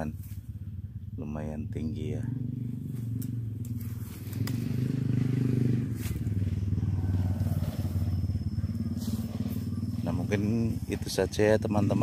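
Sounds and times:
engine running steadily: 0:00.0 - 0:12.0
leaves brushing past: 0:02.8 - 0:10.4.

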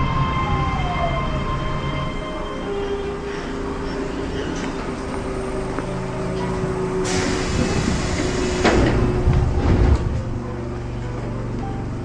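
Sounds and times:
train electrical hum: 0:00.0 - 0:12.0
sliding doors clunking open: 0:06.3 - 0:10.4
compressed air hiss: 0:07.0 - 0:08.9.

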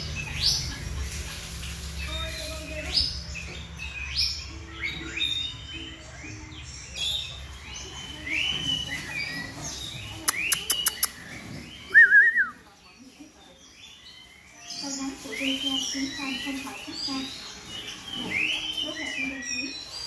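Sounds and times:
bird singing whistled notes: 0:02.0 - 0:12.7, 0:13.9 - 0:20.0
sharp clicks: 0:10.2 - 0:11.2.

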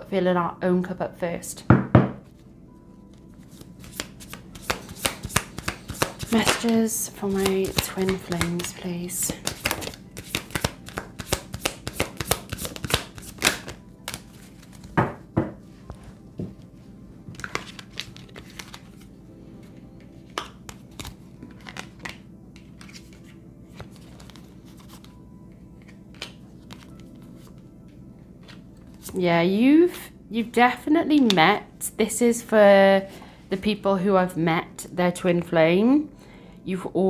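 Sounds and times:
soft background music: 0:00.0 - 0:37.0
cards shuffled by hand: 0:03.4 - 0:15.0, 0:17.3 - 0:19.1, 0:20.3 - 0:25.2, 0:25.8 - 0:27.6.

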